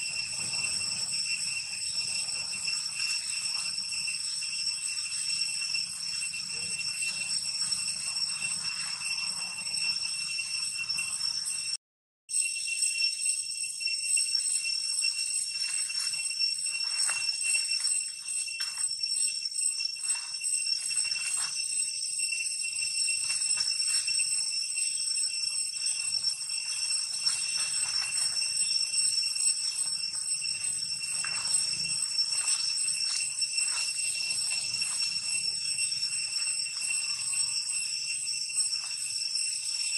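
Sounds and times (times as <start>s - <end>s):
monkeys rustling through dry leaves: 0.0s - 11.2s, 20.0s - 21.6s, 22.7s - 39.9s
high-pitched insect drone: 0.0s - 39.9s.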